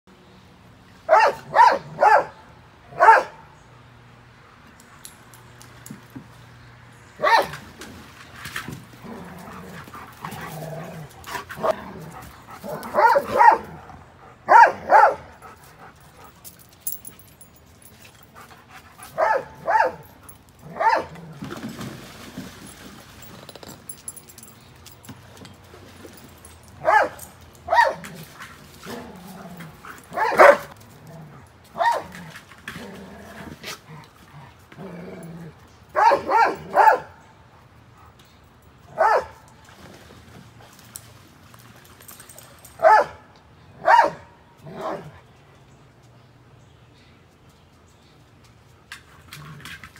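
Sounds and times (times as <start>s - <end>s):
dog barking: 1.1s - 3.4s, 7.2s - 7.5s, 12.7s - 13.7s, 14.5s - 15.3s, 19.2s - 20.0s, 20.8s - 21.1s, 26.8s - 28.0s, 30.2s - 30.7s, 36.0s - 37.2s, 39.0s - 39.4s, 42.8s - 43.2s, 43.8s - 45.0s.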